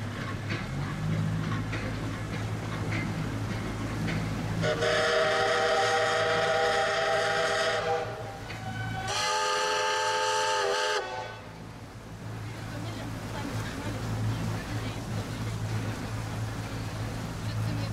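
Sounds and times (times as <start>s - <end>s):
steam locomotive whistle: 4.6s - 11.5s.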